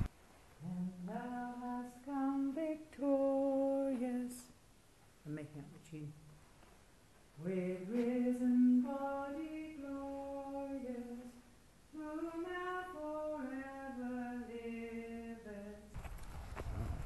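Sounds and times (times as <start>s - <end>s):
person singing unaccompanied: 0.0s - 4.6s, 7.4s - 16.0s.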